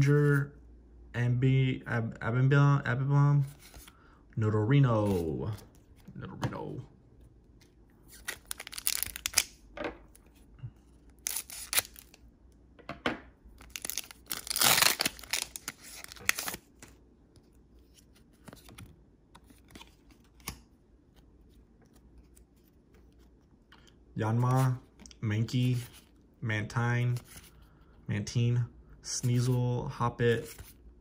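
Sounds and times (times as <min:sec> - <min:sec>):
foil wrapper crinkling and tearing: 0:08.2 - 0:09.6, 0:11.2 - 0:12.2, 0:13.6 - 0:16.7.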